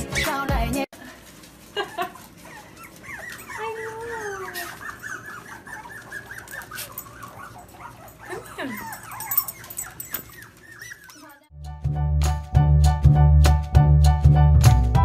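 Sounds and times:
puppies whimpering and squeaking: 1.6s - 11.5s
puppy whining: 1.7s - 11.5s.

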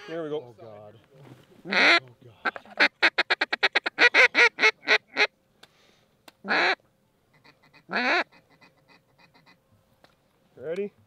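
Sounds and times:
duck call quacking: 1.7s - 5.3s, 6.4s - 9.6s.

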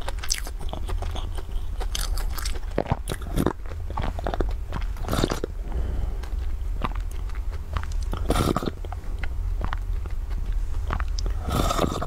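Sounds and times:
steady low hum: 0.0s - 12.0s
sipping and swallowing: 0.9s - 9.0s, 10.9s - 12.0s.

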